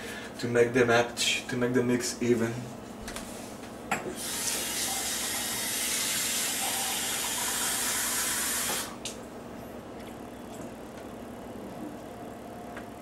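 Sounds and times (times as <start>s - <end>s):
tap water running into cup: 4.2s - 8.9s.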